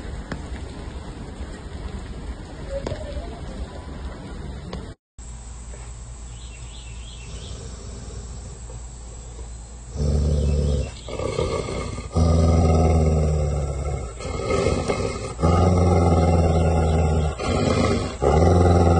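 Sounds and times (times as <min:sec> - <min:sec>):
dog growling: 0:07.2 - 0:08.8, 0:09.9 - 0:18.9.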